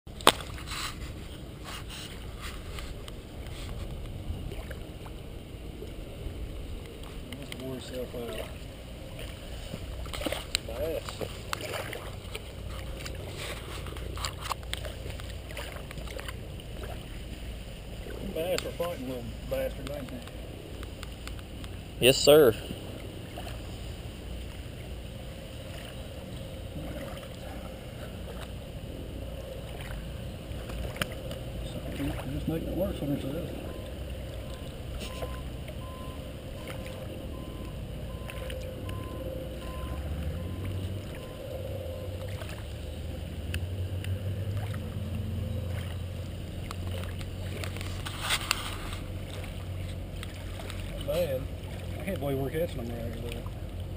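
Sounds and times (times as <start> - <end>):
faint clicks and rustles: 0.1 - 7.7, 8.4 - 21.8, 43.4 - 53.9
river water lapping: 0.1 - 53.9
faint soft brushing: 0.5 - 4.0, 47.8 - 50.6.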